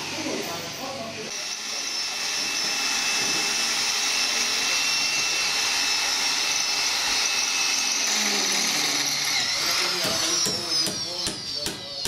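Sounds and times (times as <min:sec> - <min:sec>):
electric drill whining into wood: 0:01.3 - 0:12.0.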